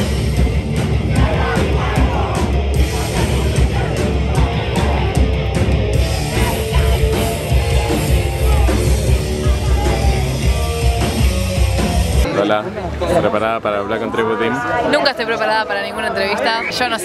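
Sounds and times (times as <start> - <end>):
punk band playing live: 0.0 - 12.3.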